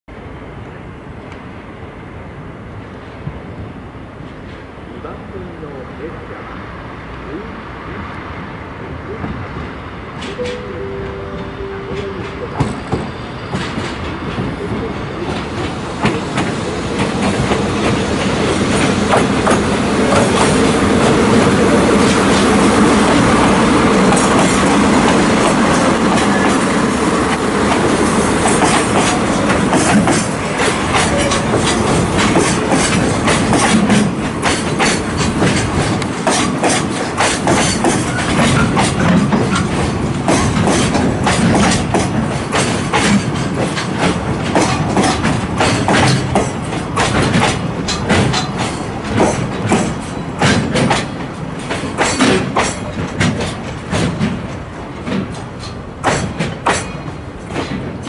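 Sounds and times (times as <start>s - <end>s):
diesel locomotive engine: 0.1s - 58.0s
wheels clicking over rail joints: 24.0s - 58.0s.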